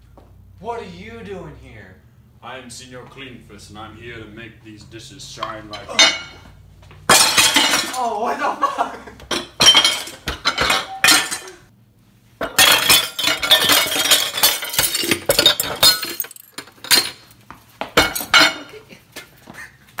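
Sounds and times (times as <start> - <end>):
dishes clattering in sink: 5.4 - 6.5, 7.1 - 8.0, 9.2 - 11.6, 12.4 - 17.2, 18.0 - 18.8.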